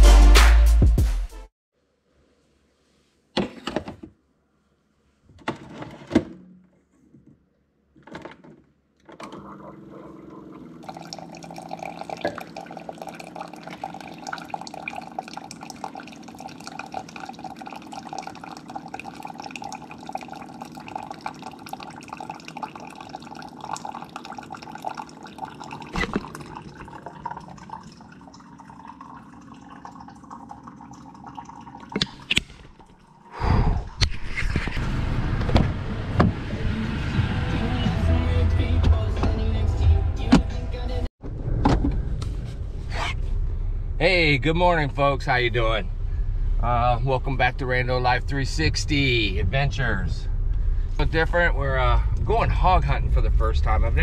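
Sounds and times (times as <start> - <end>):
coffee maker pump humming: 9.2 - 33.2
water trickling into a cup: 9.6 - 33.2.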